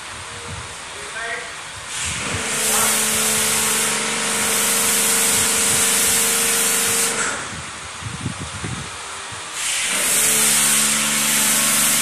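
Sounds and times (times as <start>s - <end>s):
pump hum: 1.6s - 12.0s
pressure washer jet hissing: 1.8s - 7.8s, 9.5s - 12.0s.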